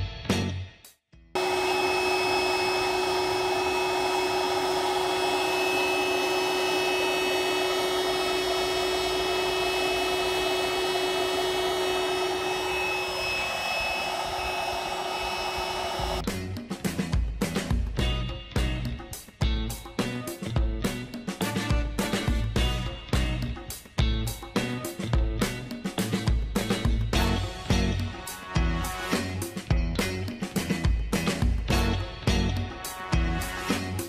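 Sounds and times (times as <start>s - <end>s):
air pump whistling whine: 1.4s - 16.2s.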